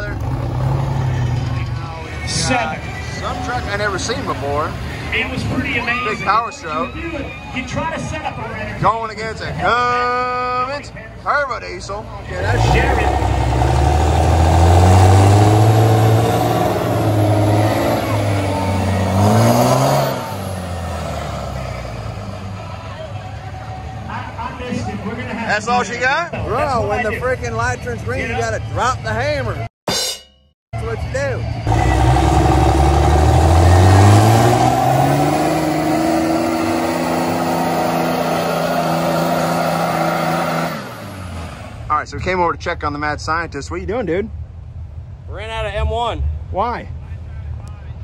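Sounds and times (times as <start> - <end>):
diesel truck engines at full throttle: 0.0 - 25.6, 30.8 - 42.4.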